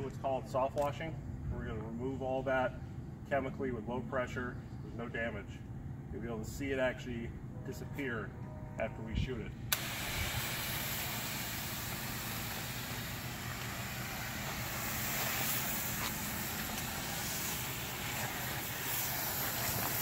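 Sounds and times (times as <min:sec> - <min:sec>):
steady low hum: 0:00.0 - 0:20.0
hose spray hissing on wall: 0:09.7 - 0:20.0.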